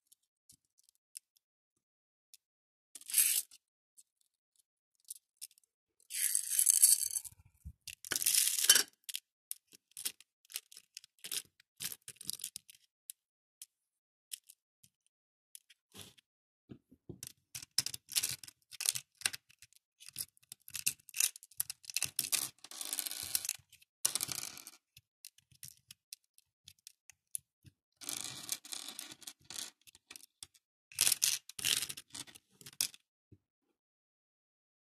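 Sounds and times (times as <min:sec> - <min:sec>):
plastic beads clicking and rattling: 0:05.1 - 0:09.2, 0:20.0 - 0:22.5, 0:29.5 - 0:33.0.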